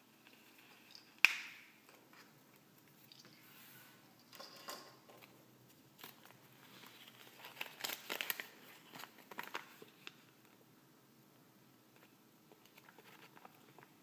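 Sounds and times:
paper crinkling: 0:05.2 - 0:10.2, 0:12.0 - 0:14.0.

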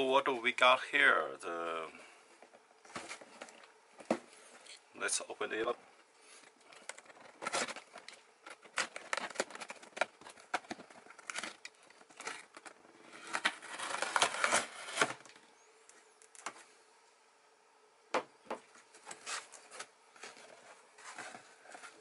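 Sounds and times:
tape and cardboard scraping: 0:07.1 - 0:15.4, 0:18.9 - 0:22.0
tape ripping: 0:07.4 - 0:15.4.

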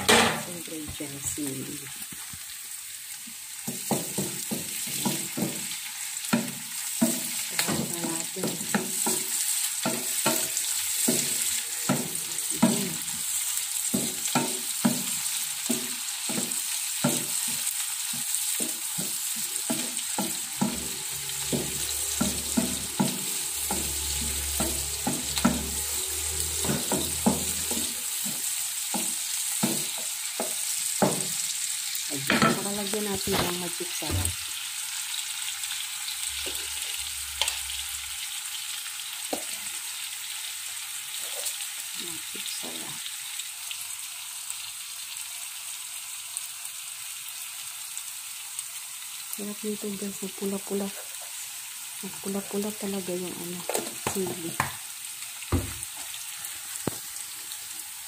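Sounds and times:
oil sizzling: 0:00.0 - 0:58.0
wooden spatula scraping frying pan: 0:06.4 - 0:31.3.

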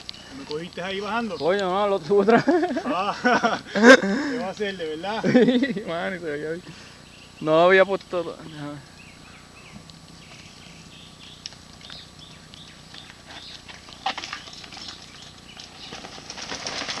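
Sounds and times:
tyres crunching over loose ground: 0:00.0 - 0:06.0, 0:09.6 - 0:17.0
bike frame and chain clatter: 0:13.3 - 0:17.0.

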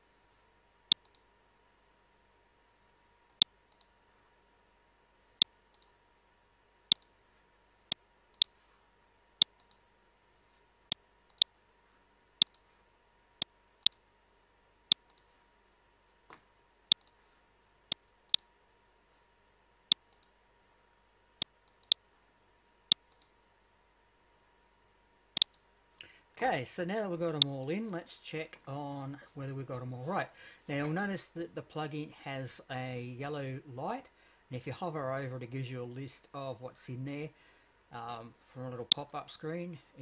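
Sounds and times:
faint steady hum: 0:00.0 - 0:40.0
computer mouse clicking: 0:00.9 - 0:01.3, 0:03.7 - 0:03.9, 0:05.7 - 0:06.0, 0:06.9 - 0:07.1, 0:09.4 - 0:09.8, 0:12.4 - 0:12.6, 0:14.9 - 0:15.3, 0:16.9 - 0:17.2, 0:19.9 - 0:20.3, 0:21.6 - 0:22.0, 0:22.9 - 0:23.3.

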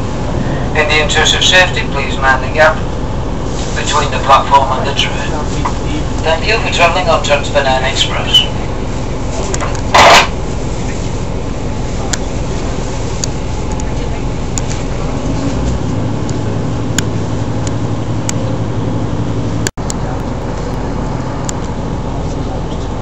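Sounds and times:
low engine drone: 0:00.0 - 0:23.0
train running rumble and rush: 0:00.0 - 0:23.0.

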